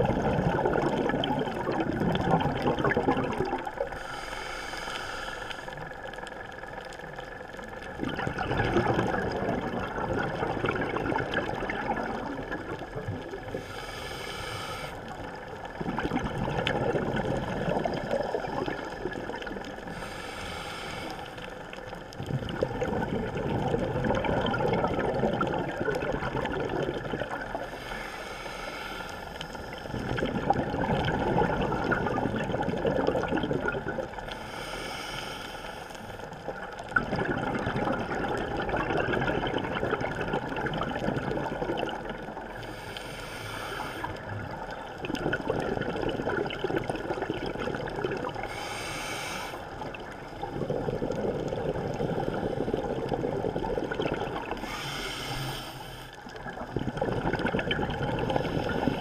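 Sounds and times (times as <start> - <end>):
bubbling exhalations underwater: 0.0 - 3.9, 7.8 - 13.6, 15.4 - 20.0, 22.1 - 27.7, 29.9 - 34.3, 36.5 - 42.6, 44.0 - 48.7, 49.7 - 55.0, 56.3 - 59.0
hissing regulator inhalations: 3.9 - 5.9, 13.5 - 15.4, 19.8 - 21.8, 27.6 - 30.0, 34.3 - 36.4, 42.5 - 44.4, 48.4 - 50.0, 54.5 - 56.3.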